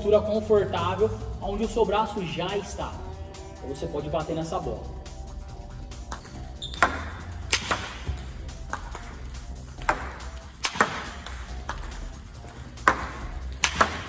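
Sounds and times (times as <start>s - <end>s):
background music: 0.0s - 14.0s
table tennis ball clicks: 6.1s - 14.0s.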